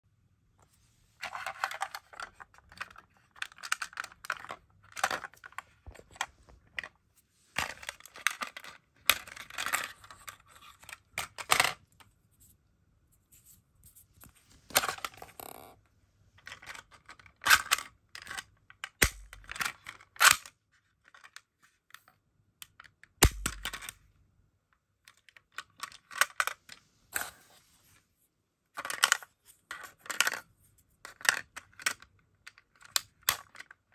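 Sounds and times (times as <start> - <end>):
plastic balls rattling: 1.2 - 6.9.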